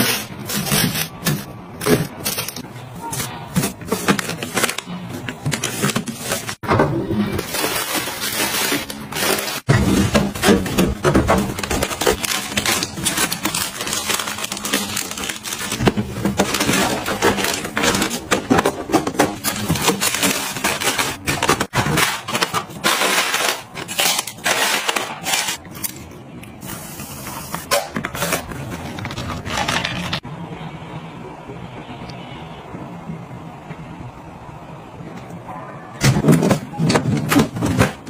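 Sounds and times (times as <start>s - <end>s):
items knocking into drawer: 0.4s - 13.3s, 36.0s - 38.0s
plastic wrapping crinkling: 7.4s - 26.0s, 27.7s - 30.2s.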